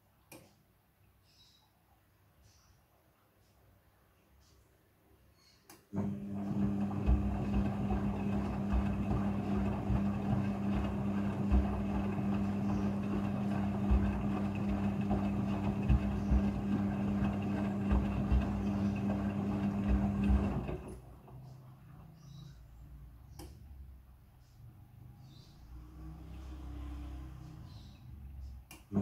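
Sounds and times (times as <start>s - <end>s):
washing machine motor humming: 5.9s - 21.4s.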